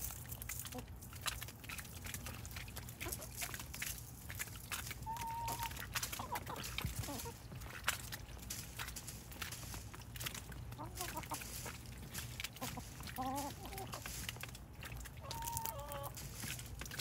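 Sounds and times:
beaks pecking leaves: 0.0 - 17.0
chickens clucking softly: 2.8 - 3.7, 4.8 - 8.2, 10.3 - 16.2.

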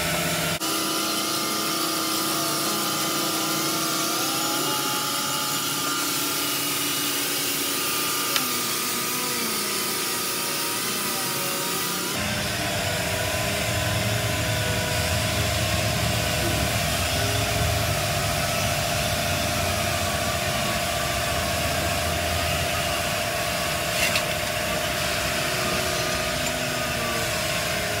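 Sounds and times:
cutting torch flame hissing: 0.5 - 19.8.

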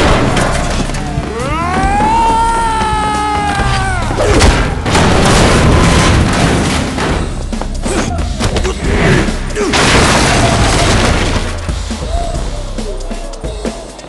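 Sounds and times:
bodies slamming into metal lockers: 0.0 - 1.0, 4.2 - 8.8, 9.5 - 11.8
booming hits and crashes: 0.0 - 2.6, 3.5 - 12.1
action film music: 0.0 - 14.0.

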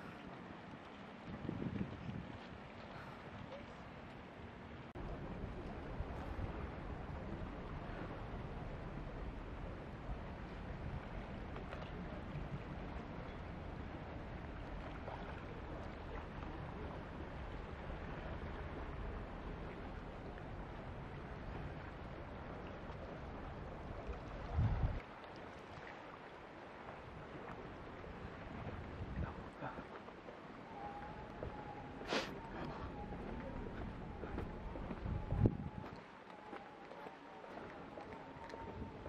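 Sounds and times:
sea rushing: 0.0 - 39.0
wind rumbling on microphone: 0.0 - 39.0.

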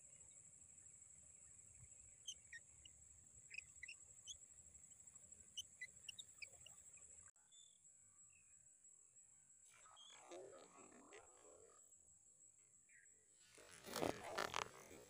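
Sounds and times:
short bird chirps: 2.1 - 2.9.

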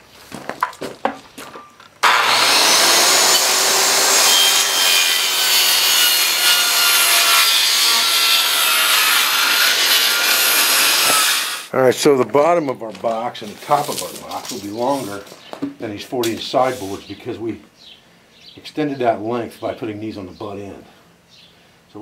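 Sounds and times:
circular saw cutting wood: 2.0 - 11.7.

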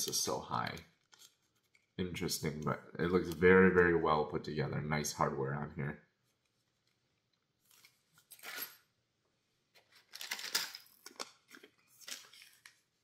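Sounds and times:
plastic packaging crinkling: 10.0 - 12.9.

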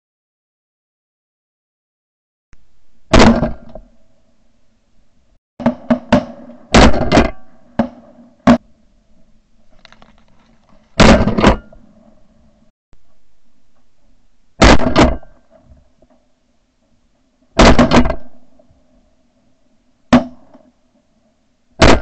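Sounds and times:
shotgun blasts: 3.1 - 3.8, 5.6 - 8.6, 11.0 - 11.7, 14.6 - 15.4, 17.6 - 18.4, 21.8 - 22.0.

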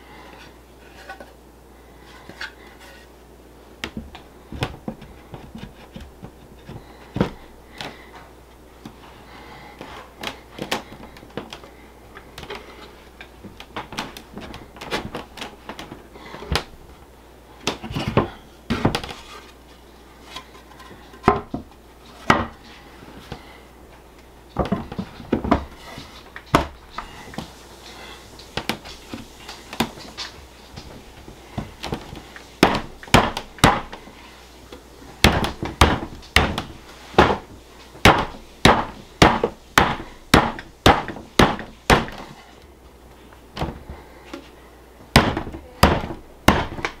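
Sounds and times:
wooden boards knocking and clattering: 17.6 - 19.4, 20.3 - 22.6, 24.5 - 27.5, 28.4 - 34.0, 35.2 - 42.4, 43.6 - 44.0, 45.1 - 47.0.

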